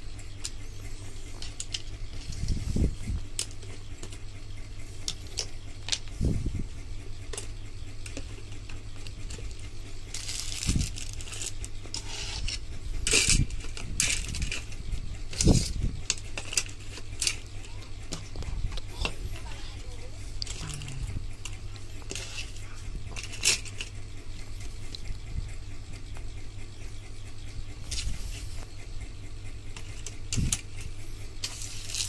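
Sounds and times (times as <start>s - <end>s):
low hum: 0.0s - 32.0s
plastic parts clicking and clattering: 1.4s - 2.6s, 5.1s - 6.1s, 9.0s - 19.2s, 20.4s - 24.0s
rustling: 9.0s - 14.7s.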